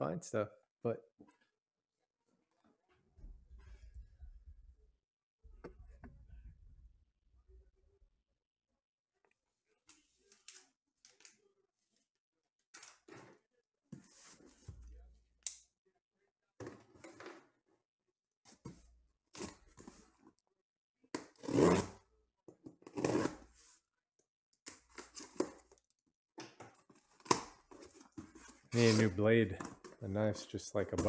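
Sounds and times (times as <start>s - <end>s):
knife scraping through tape: 23.0s - 23.5s
cardboard rustling: 26.8s - 29.8s.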